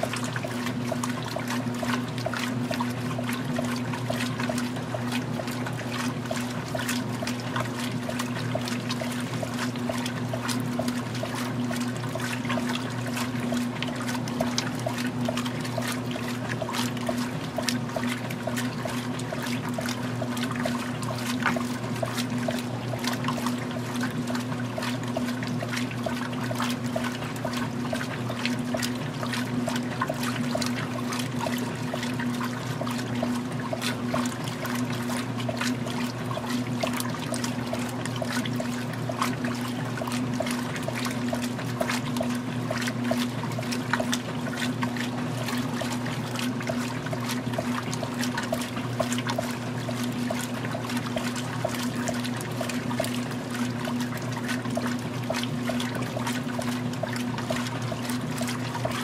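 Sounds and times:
washing machine motor hum: 0:00.0 - 0:59.0
water sloshing and splashing: 0:00.0 - 0:59.0.

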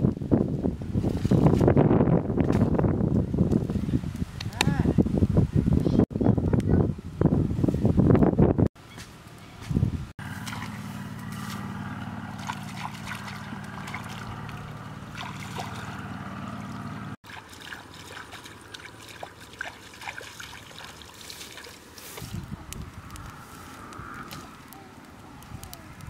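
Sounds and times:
wood fire crackling: 0:02.2 - 0:05.8, 0:10.2 - 0:17.2, 0:17.8 - 0:26.0
low steady hum: 0:10.2 - 0:21.0
shallow water trickling and sloshing: 0:10.2 - 0:22.4.

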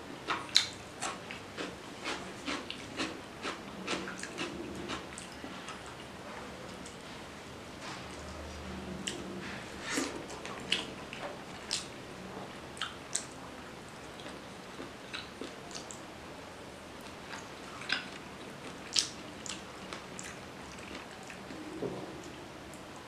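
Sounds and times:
wet chewing clicks and smacks: 0:17.3 - 0:21.4.

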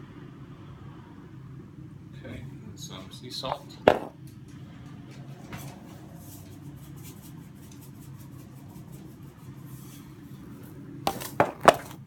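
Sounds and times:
sharp knocks: 0:03.9 - 0:04.2, 0:11.1 - 0:12.0.

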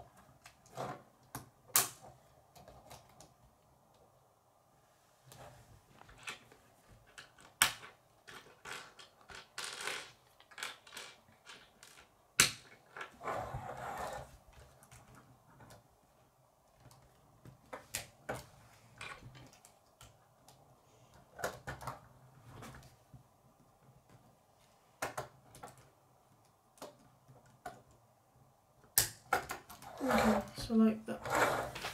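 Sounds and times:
loud plastic snaps: 0:01.3 - 0:02.0
plastic toy pieces clicking: 0:07.2 - 0:12.5.

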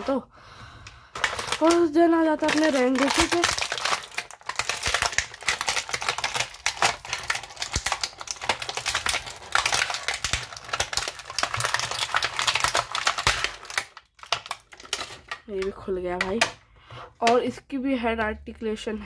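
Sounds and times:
plastic bag crinkling: 0:01.1 - 0:16.5.

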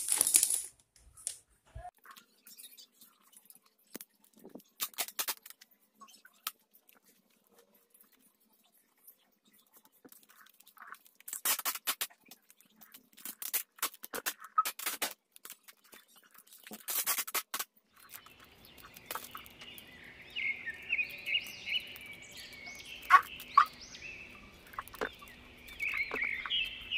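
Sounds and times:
plastic wrap crinkling: 0:00.0 - 0:01.4
high repeated chirping: 0:18.0 - 0:26.9.

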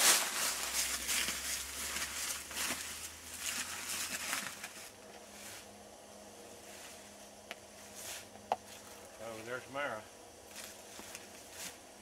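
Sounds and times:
footsteps in dry leaves: 0:00.0 - 0:05.8, 0:10.5 - 0:11.9.

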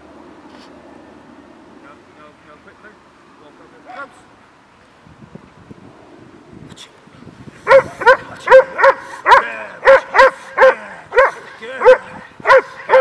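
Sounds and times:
dog barking: 0:07.7 - 0:13.0.

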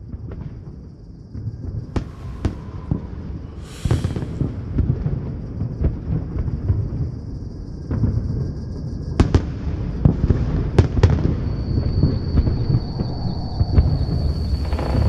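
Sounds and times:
distant firework booms: 0:01.6 - 0:06.8
firework cracks: 0:01.9 - 0:05.0
thin high whine: 0:02.0 - 0:04.6, 0:11.4 - 0:15.0.

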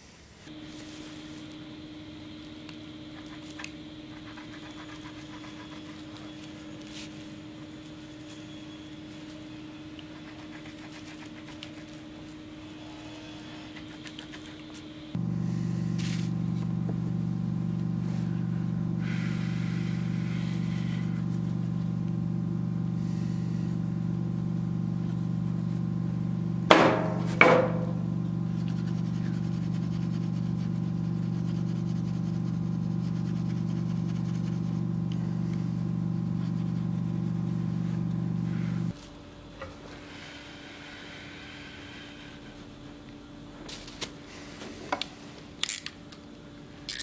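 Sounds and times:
steady machine hum: 0:00.5 - 0:47.0
sharp knocks: 0:26.7 - 0:28.0.

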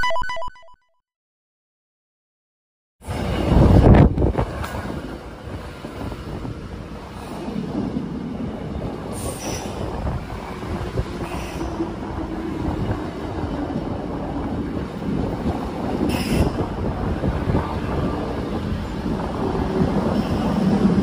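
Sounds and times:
train wheels rumbling on rail: 0:03.0 - 0:21.0.

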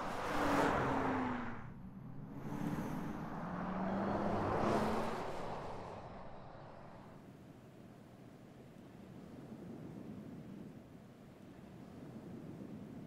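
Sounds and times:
low hum: 0:00.0 - 0:07.2.

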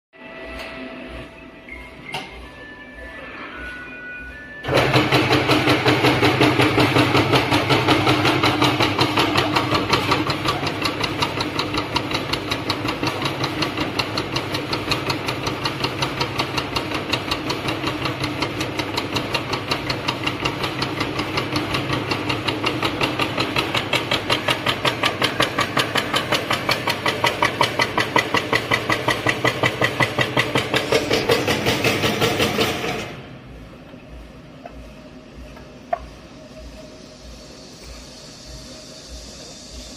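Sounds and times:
machine motor hum: 0:04.6 - 0:39.9.

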